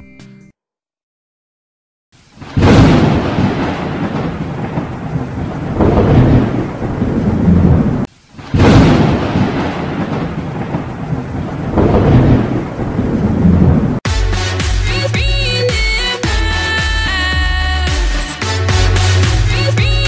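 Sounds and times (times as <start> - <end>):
heavy rain: 2.2 - 14.0
loud thunderclap: 2.4 - 14.0
rolling thunder: 2.4 - 14.0.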